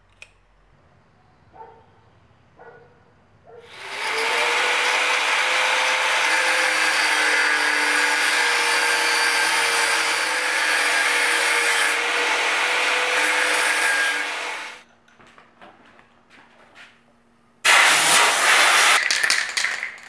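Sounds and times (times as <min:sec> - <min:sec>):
angle grinder grinding metal: 0:03.7 - 0:14.8.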